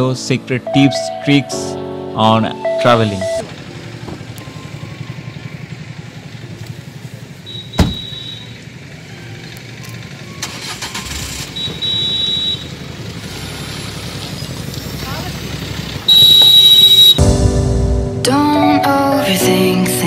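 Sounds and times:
car engine rumbling: 0.0 - 19.3
car door shutting: 3.4 - 4.5, 7.5 - 8.5.

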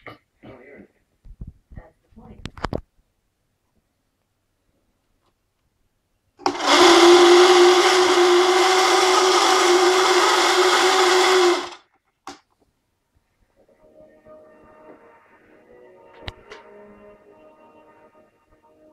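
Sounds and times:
electric motors whining: 6.4 - 11.8.

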